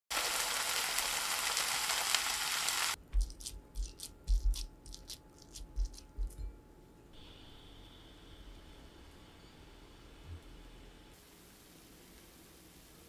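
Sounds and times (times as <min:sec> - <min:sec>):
food sizzling in frying pan: 0:00.1 - 0:03.0.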